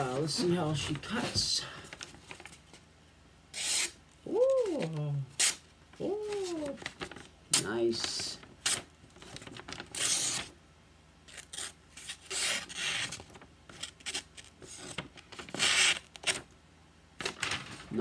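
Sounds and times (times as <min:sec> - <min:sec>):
paper rustling: 0:00.0 - 0:02.9, 0:04.4 - 0:10.6, 0:11.3 - 0:16.5, 0:17.2 - 0:18.0
knife slicing paper: 0:03.5 - 0:04.0, 0:09.7 - 0:10.5, 0:11.3 - 0:16.4.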